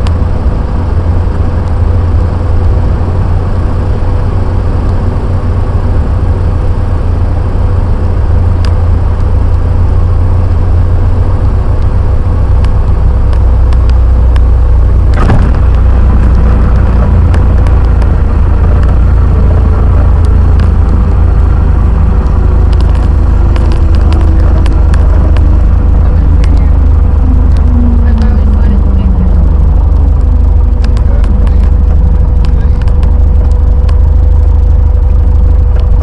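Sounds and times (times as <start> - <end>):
small plane engine and propeller drone: 0.0 - 36.0
wheels touching down thump: 15.1 - 19.1.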